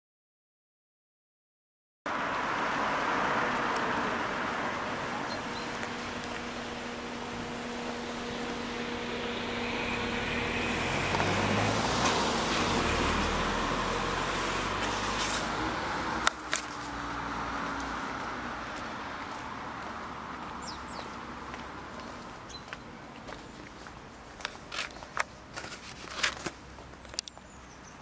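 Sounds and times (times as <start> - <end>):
car passing: 2.1 - 23.4.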